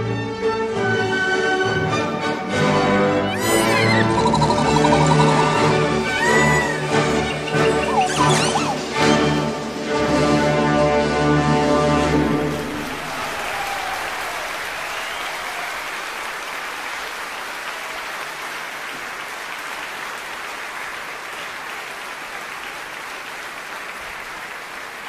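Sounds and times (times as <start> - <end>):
audience applauding: 3.2 - 10.6, 12.1 - 25.0.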